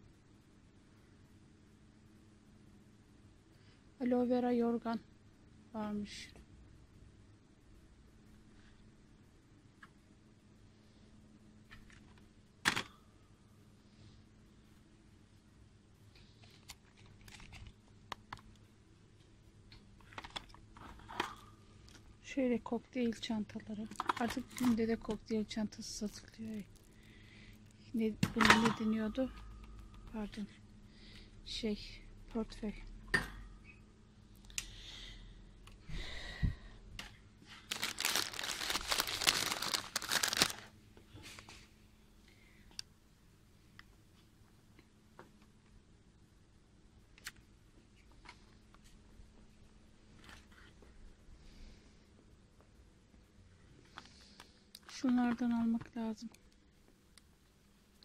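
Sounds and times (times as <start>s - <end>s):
low steady hum: 0.0s - 58.0s
plastic wrappers crinkling: 16.4s - 17.8s, 23.8s - 27.1s, 37.5s - 40.7s.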